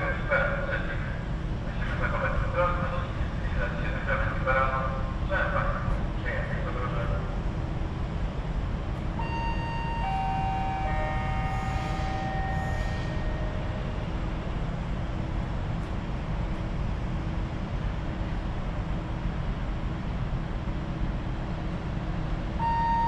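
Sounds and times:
train rumble: 0.0s - 23.0s
descending three-note chime: 9.2s - 13.4s.

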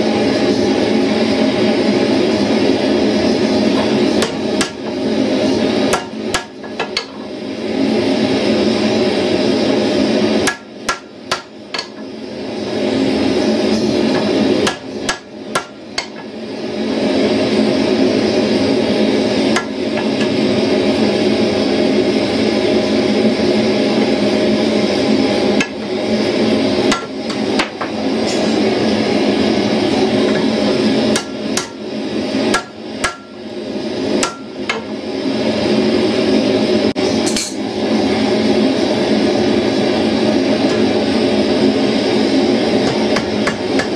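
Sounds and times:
hammer striking steel on anvil: 10.4s - 12.0s, 13.8s - 16.2s, 31.1s - 31.8s, 32.5s - 33.4s, 34.2s - 34.9s, 37.2s - 37.6s.

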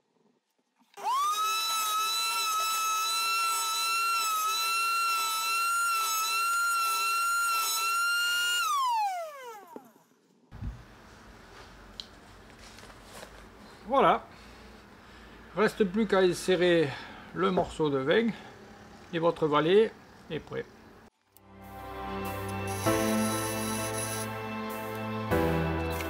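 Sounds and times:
wood router whining: 1.0s - 10.1s, 22.5s - 24.4s.

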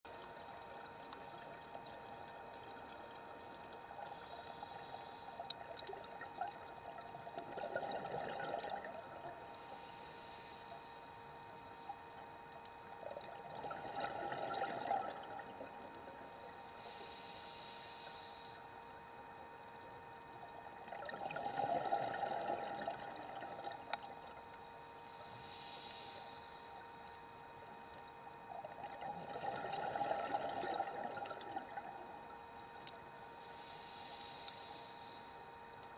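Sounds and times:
faint steady hum: 0.0s - 35.9s
hissing regulator inhalations: 4.0s - 5.5s, 16.2s - 19.0s, 24.6s - 27.2s, 31.2s - 35.5s
bubbling exhalations: 7.4s - 9.0s, 28.6s - 31.8s.

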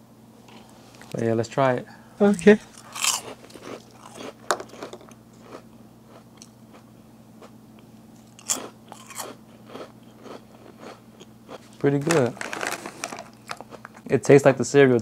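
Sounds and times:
person chewing crunchy chips: 2.7s - 7.6s, 8.2s - 14.1s.

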